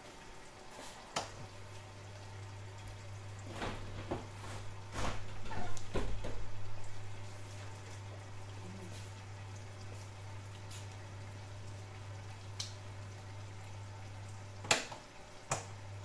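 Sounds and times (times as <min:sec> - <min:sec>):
liquid bubbling in a pan: 0:00.0 - 0:16.0.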